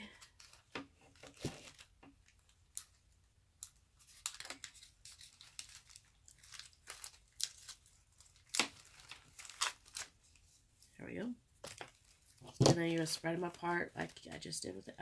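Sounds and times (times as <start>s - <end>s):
plastic leaves rustling: 3.6s - 10.6s.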